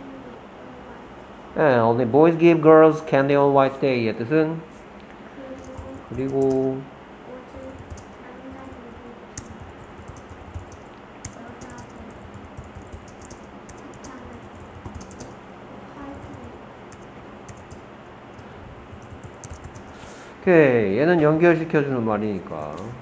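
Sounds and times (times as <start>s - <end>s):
keyboard typing: 5.6s - 6.7s, 7.6s - 15.4s, 16.1s - 20.0s.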